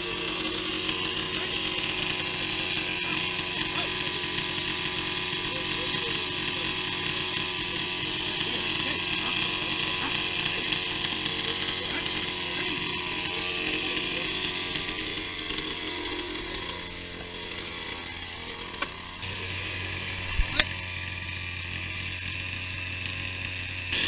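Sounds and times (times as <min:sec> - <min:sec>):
chainsaw idling: 0:00.0 - 0:24.0.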